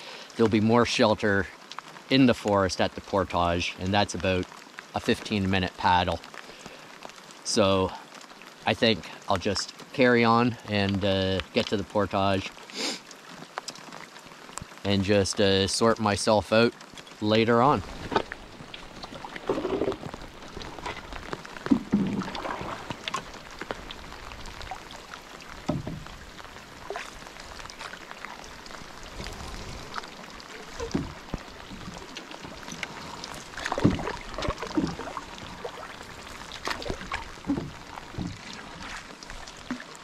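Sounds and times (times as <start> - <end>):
rain hissing on lake: 0.0 - 40.0
paddle splashing: 16.8 - 40.0.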